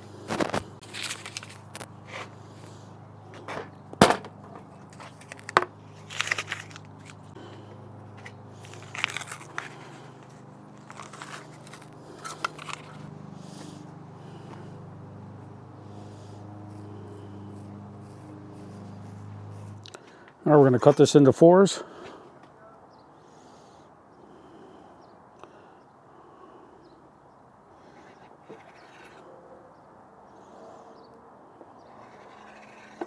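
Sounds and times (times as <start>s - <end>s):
steady low hum: 0.0s - 20.4s
wrapper crinkling and tearing: 0.3s - 1.9s, 5.1s - 7.3s, 8.6s - 9.8s, 10.8s - 13.0s.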